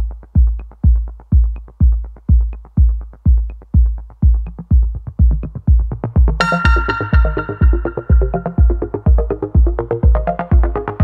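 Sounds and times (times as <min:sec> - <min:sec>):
drum machine kick drum: 0:00.0 - 0:11.0
ticking hi-hats: 0:00.0 - 0:11.0
electronic dance music: 0:06.4 - 0:09.8.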